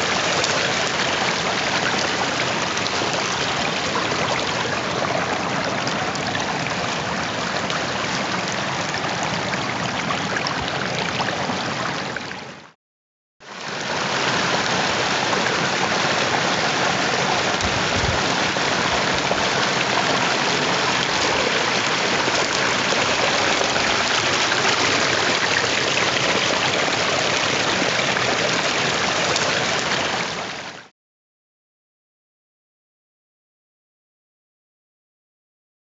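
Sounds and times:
rushing white water: 0:00.0 - 0:12.3, 0:13.5 - 0:30.9.

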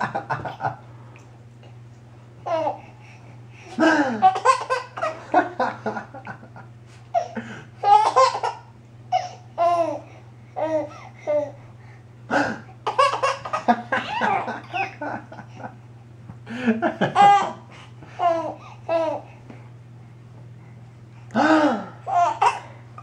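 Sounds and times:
man laughing: 0:00.0 - 0:00.8, 0:03.8 - 0:07.6, 0:13.6 - 0:15.8, 0:16.5 - 0:17.6
steady low hum: 0:00.0 - 0:23.0
baby laughing: 0:03.8 - 0:05.4, 0:07.1 - 0:10.0, 0:12.8 - 0:15.5, 0:17.0 - 0:19.3, 0:22.1 - 0:22.7.

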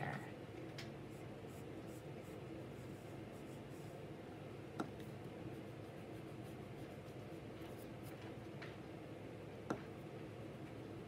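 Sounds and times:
pencil scratching on paper: 0:01.1 - 0:03.9, 0:05.5 - 0:08.2.

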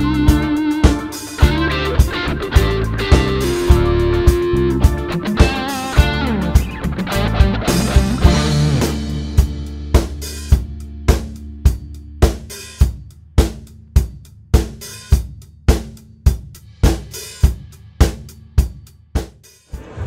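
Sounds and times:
steady drum beat: 0:00.0 - 0:20.0
cymbal crash: 0:19.7 - 0:20.0.

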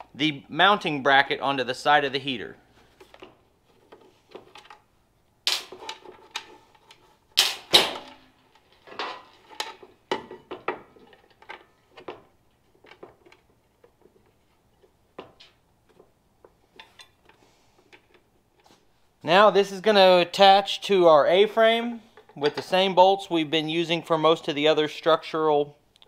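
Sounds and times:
metal hardware clicks and knocks: 0:07.8 - 0:18.2.

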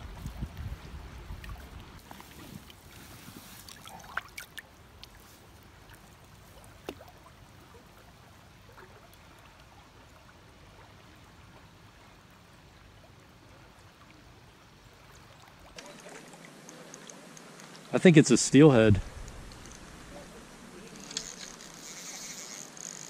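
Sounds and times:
river water lapping: 0:00.0 - 0:23.0
small ticks: 0:15.8 - 0:17.9, 0:19.2 - 0:20.0, 0:20.9 - 0:23.0.

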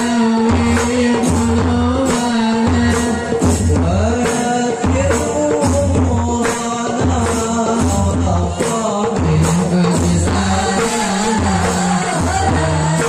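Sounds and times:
frame drums beating: 0:00.0 - 0:13.0
man singing into a microphone: 0:00.0 - 0:13.0.

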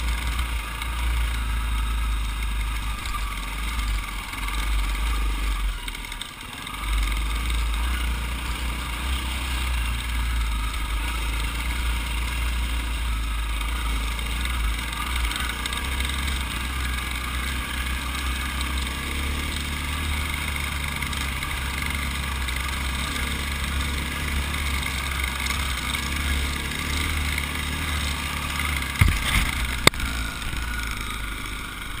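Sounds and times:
dirt bike engine running: 0:00.0 - 0:32.0
sharp knocks: 0:28.9 - 0:30.0.

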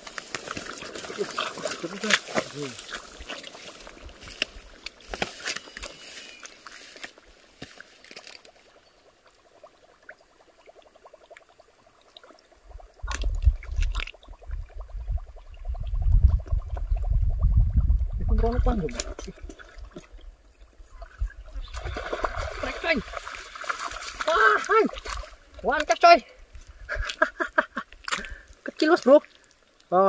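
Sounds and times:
water gurgling and splashing: 0:00.0 - 0:05.2, 0:08.2 - 0:26.2.

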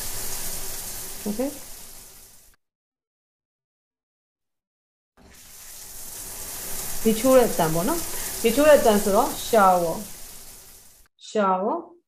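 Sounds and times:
shower water spraying: 0:00.0 - 0:02.6, 0:05.2 - 0:11.1
person speaking: 0:07.0 - 0:10.1.

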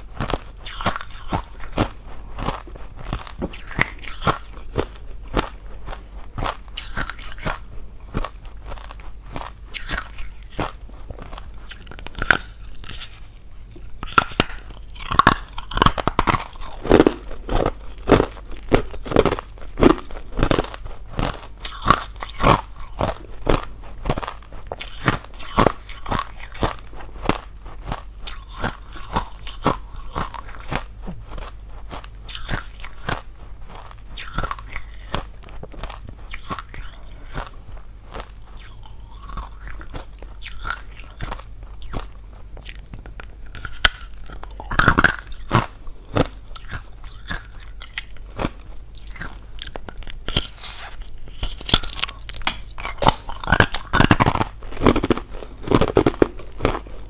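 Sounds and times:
ice being chewed: 0:00.0 - 0:57.0.

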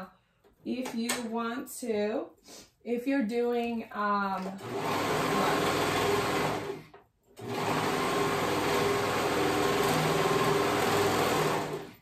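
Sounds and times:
overlocker sewing machine running: 0:04.5 - 0:12.0.

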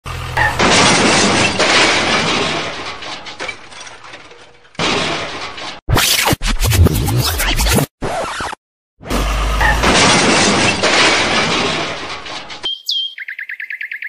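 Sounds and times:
glass shattering: 0:00.4 - 0:05.8, 0:09.6 - 0:12.6.

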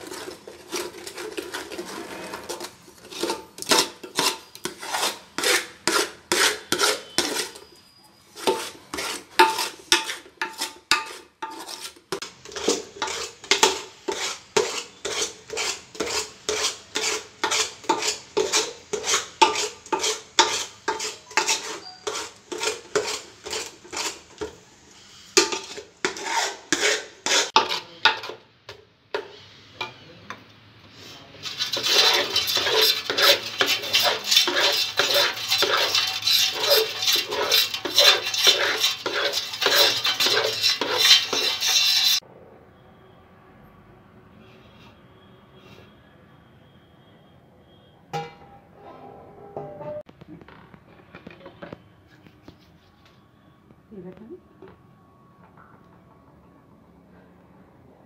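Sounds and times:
metal spoon stirring thick milk: 0:00.0 - 0:24.6, 0:25.3 - 0:28.5, 0:31.1 - 0:42.2.

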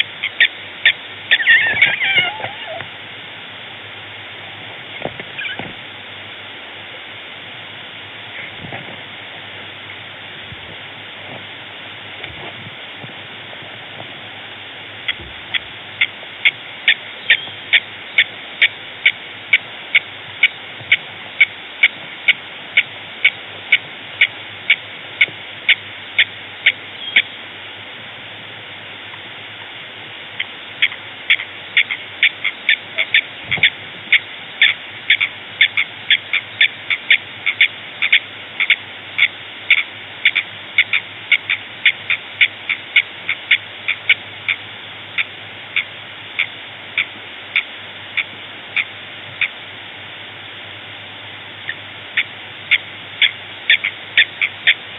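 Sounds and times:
animal short repeated call: 0:00.0 - 0:02.9
steady background hiss: 0:00.0 - 0:54.9.

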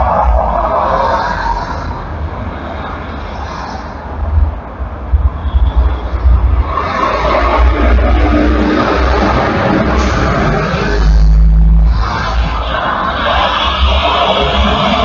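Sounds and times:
bus passing: 0:00.0 - 0:15.0
heavy highway traffic: 0:00.0 - 0:15.0
deep low rumble: 0:04.2 - 0:15.0.

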